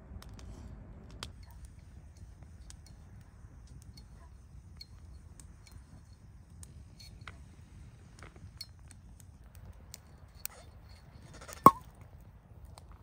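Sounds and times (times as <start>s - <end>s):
cork popping from wine bottle: 11.5s - 11.8s.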